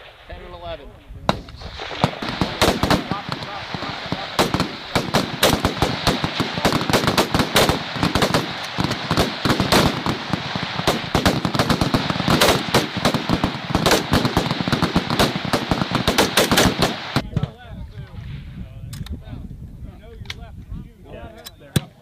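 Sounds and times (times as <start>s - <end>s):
rifle fire: 0.0s - 17.4s.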